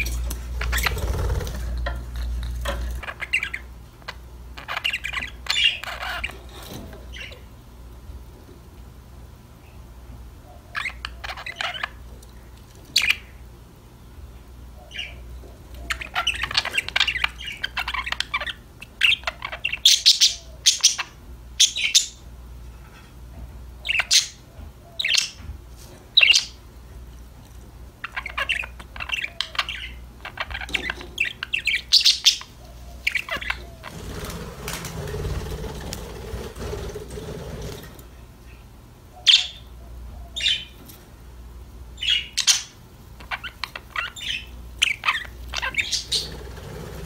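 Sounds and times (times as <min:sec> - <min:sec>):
budgerigars chirping and warbling: 0:00.0 - 0:07.5, 0:10.5 - 0:12.1, 0:12.8 - 0:13.4, 0:14.8 - 0:22.2, 0:23.8 - 0:25.5, 0:26.2 - 0:26.6, 0:28.0 - 0:37.9, 0:38.5 - 0:40.8, 0:42.0 - 0:47.0
sharp loud bird calls: 0:42.0 - 0:47.0.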